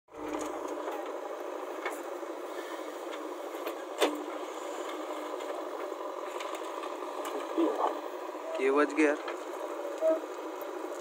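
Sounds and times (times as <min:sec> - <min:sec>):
diesel engine running: 0:00.1 - 0:11.0.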